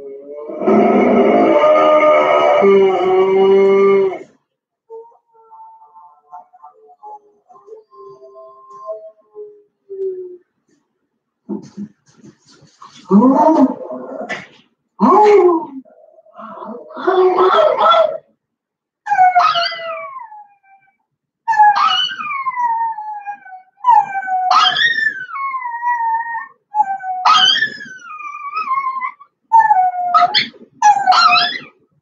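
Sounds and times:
dog howling: 0:00.0 - 0:04.3, 0:15.0 - 0:18.2, 0:19.1 - 0:20.9, 0:21.5 - 0:31.7.

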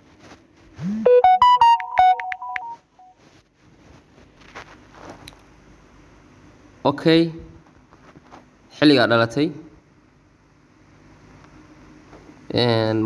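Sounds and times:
electronic jingle: 0:00.8 - 0:02.8.

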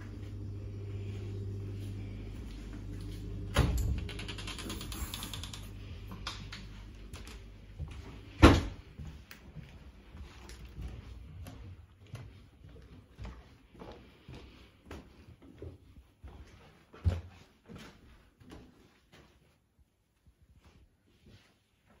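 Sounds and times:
low hum: 0:00.0 - 0:09.0
footsteps and handling clicks: 0:03.8 - 0:08.1, 0:09.0 - 0:13.4.

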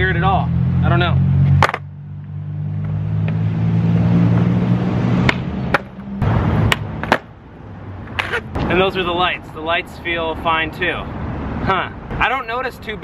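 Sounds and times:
skateboard tail clacks: 0:01.6 - 0:01.8, 0:06.7 - 0:07.3, 0:08.1 - 0:08.7
skateboard wheels rolling on concrete: 0:05.2 - 0:09.3.

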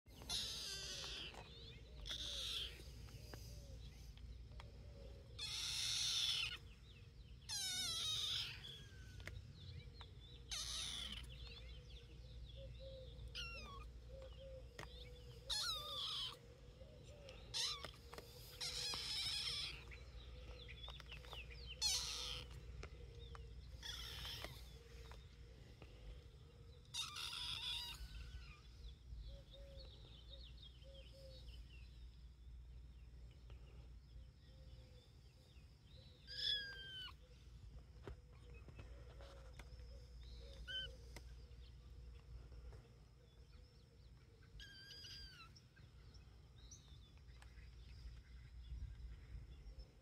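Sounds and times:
kitten meowing: 0:00.3 - 0:01.4, 0:02.0 - 0:02.8, 0:05.4 - 0:06.6, 0:07.5 - 0:08.9, 0:10.5 - 0:11.3, 0:13.3 - 0:13.9, 0:15.5 - 0:16.4, 0:17.5 - 0:18.0, 0:18.6 - 0:19.9, 0:21.8 - 0:22.6, 0:26.9 - 0:28.3, 0:36.3 - 0:37.2.

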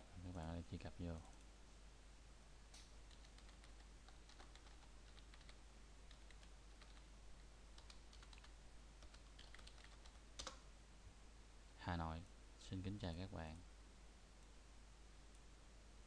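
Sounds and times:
faint keyboard typing: 0:02.8 - 0:10.7.

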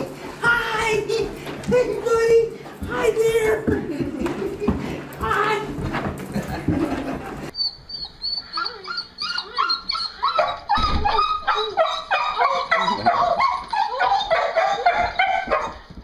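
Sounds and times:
dog whining and yipping: 0:07.6 - 0:15.9.

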